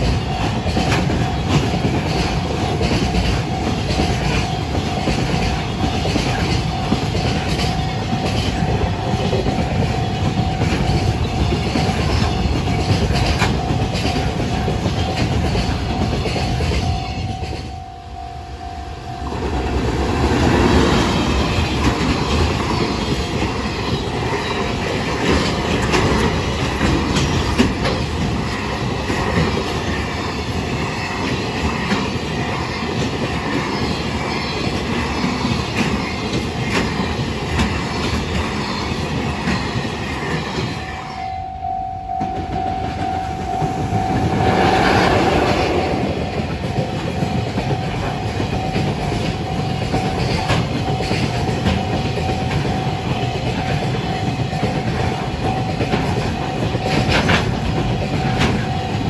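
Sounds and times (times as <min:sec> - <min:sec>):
train wheels clattering over rail joints: 0:00.0 - 0:17.8, 0:20.1 - 0:40.9, 0:42.3 - 0:59.0
level crossing bell ringing: 0:13.3 - 0:22.5, 0:40.8 - 0:59.0.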